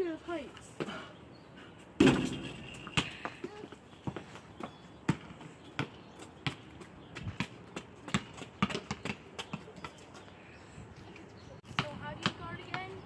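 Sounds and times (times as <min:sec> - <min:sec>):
basketball bouncing on concrete: 0:02.0 - 0:10.0, 0:11.6 - 0:13.0.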